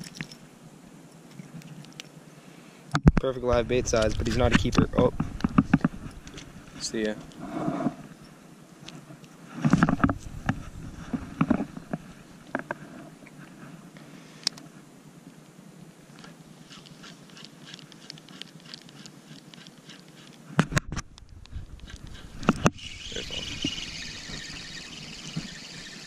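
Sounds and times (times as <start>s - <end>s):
fabric rubbing on microphone: 7.4s - 8.2s, 9.5s - 12.2s
spinning reel ticking: 21.8s - 26.0s.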